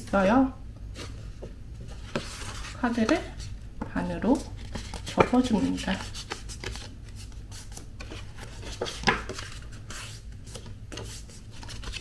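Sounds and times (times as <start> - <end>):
paper rustling: 4.3 - 12.0.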